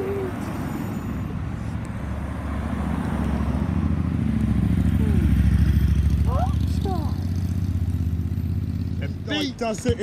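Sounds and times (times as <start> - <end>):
car engines passing: 0.0 - 10.0
motorcycle engine: 3.5 - 10.0.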